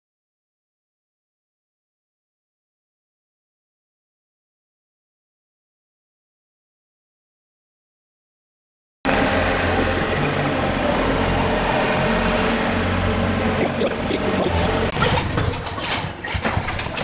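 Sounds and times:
low machine hum: 0:09.1 - 0:15.8.

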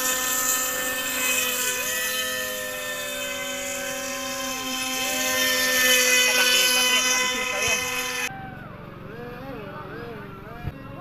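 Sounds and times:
toy boat motor whining: 0:00.0 - 0:08.3.

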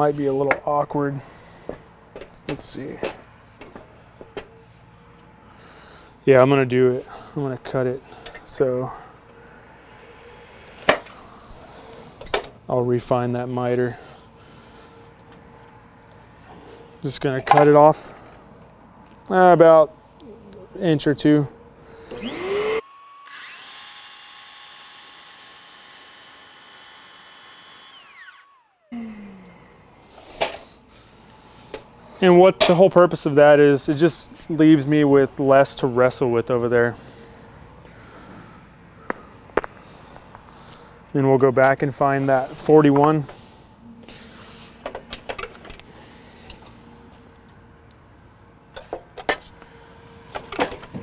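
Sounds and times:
miter saw motor whining: 0:21.9 - 0:30.0.

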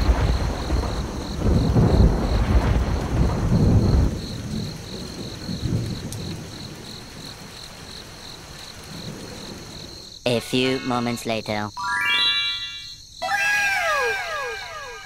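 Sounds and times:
thunder rumbling: 0:00.0 - 0:10.1
steady rain: 0:00.0 - 0:11.4.

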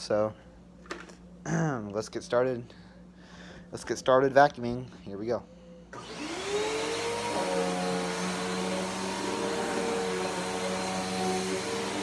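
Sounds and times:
upright vacuum cleaner running: 0:05.9 - 0:12.0.

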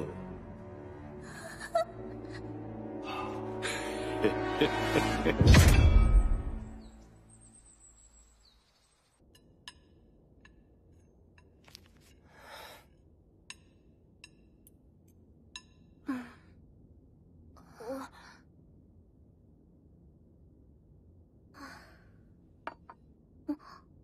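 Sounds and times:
people sighing: 0:01.2 - 0:05.3.

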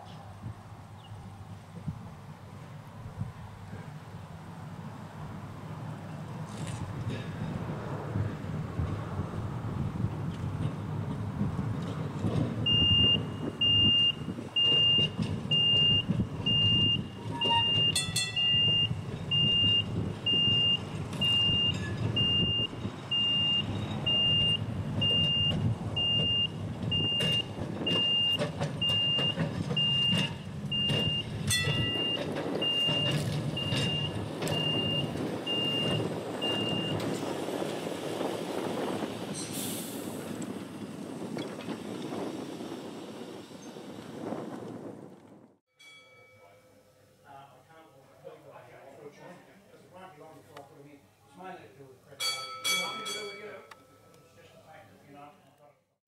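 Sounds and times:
tram rumbling along track: 0:00.0 - 0:45.6
electronic warning beeper: 0:12.7 - 0:37.0.

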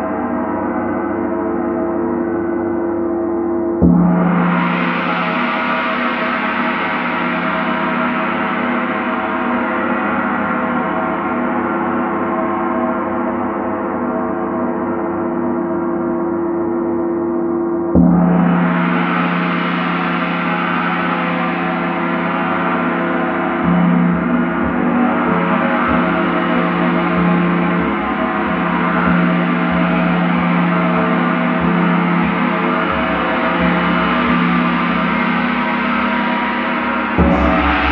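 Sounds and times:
gong ringing: 0:37.2 - 0:37.9.

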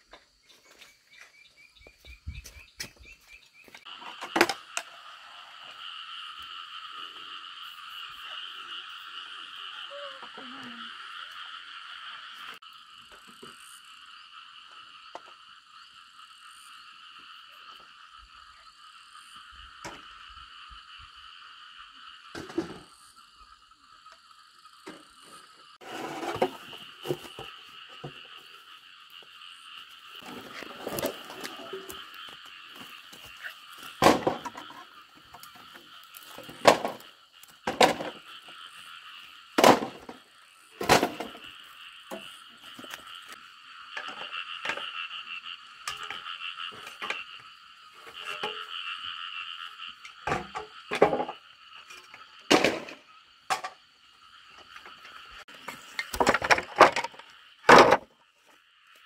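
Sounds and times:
high animal chorus: 0:25.0 - 0:50.1.

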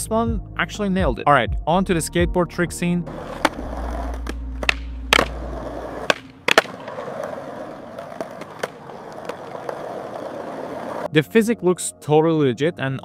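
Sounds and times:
skateboard clacks: 0:03.1 - 0:11.1
wheels rolling on concrete: 0:03.1 - 0:11.1.

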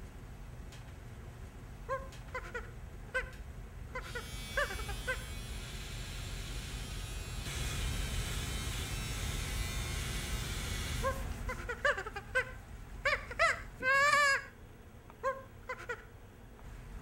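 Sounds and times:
chimpanzee calls: 0:01.9 - 0:03.4, 0:04.0 - 0:05.3, 0:11.0 - 0:14.6, 0:15.2 - 0:16.1
electric shaver buzzing: 0:04.1 - 0:11.2.

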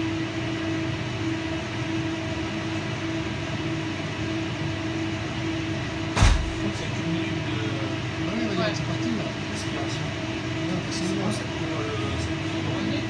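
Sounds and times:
low thump: 0:06.2 - 0:06.7.

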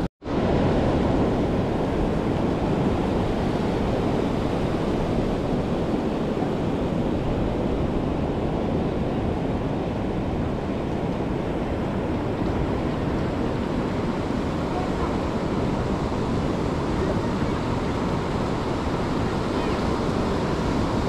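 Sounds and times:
sea surf rushing: 0:00.0 - 0:21.0
wind buffeting microphone: 0:00.0 - 0:21.0.

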